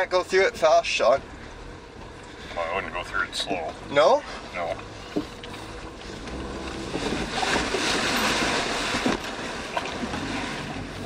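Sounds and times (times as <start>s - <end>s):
car engine running low: 0.0s - 11.0s
water splashing against car: 5.0s - 11.0s.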